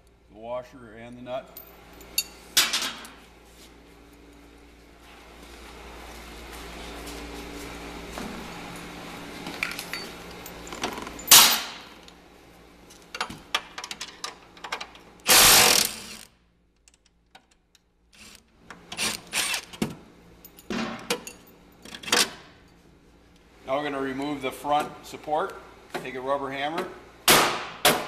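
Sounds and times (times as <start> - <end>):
impact driver bursts: 15.3 - 16.3.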